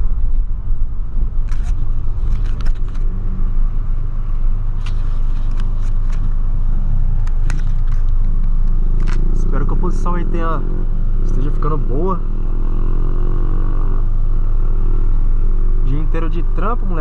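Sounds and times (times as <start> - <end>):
car engine and tyres on wet road: 0.0 - 17.0.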